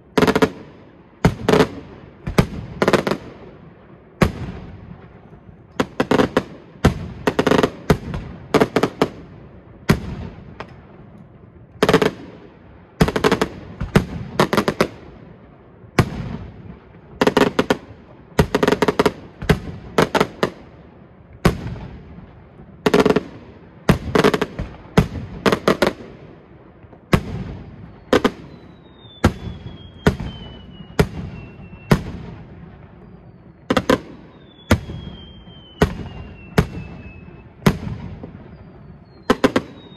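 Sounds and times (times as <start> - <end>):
fireworks bursting with loud bangs: 0.0 - 39.9
firework whistle sliding down: 34.3 - 37.5.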